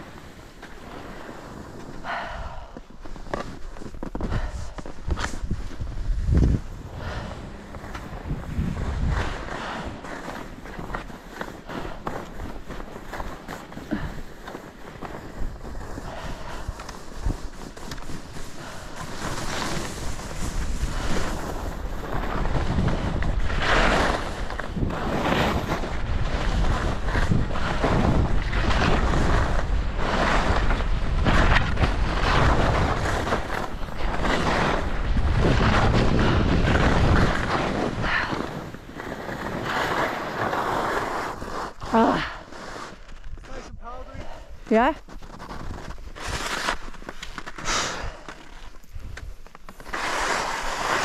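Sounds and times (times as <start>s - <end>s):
skis scraping through snow: 0.0s - 51.0s
wind buffeting microphone: 4.3s - 9.8s, 19.7s - 39.7s.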